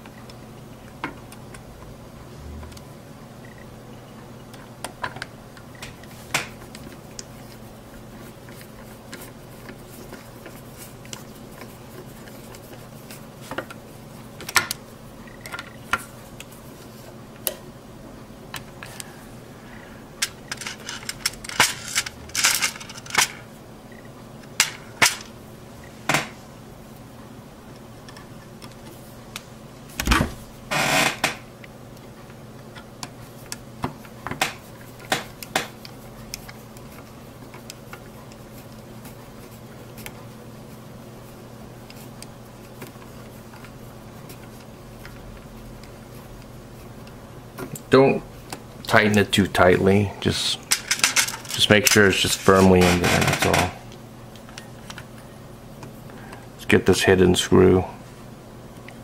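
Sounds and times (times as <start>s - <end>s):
handling noise: 20.1s - 26.4s, 49.1s - 55.2s.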